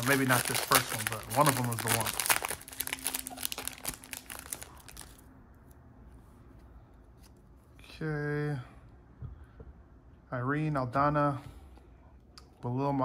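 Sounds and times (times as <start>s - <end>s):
foil pack tearing and crinkling: 0.0s - 5.2s.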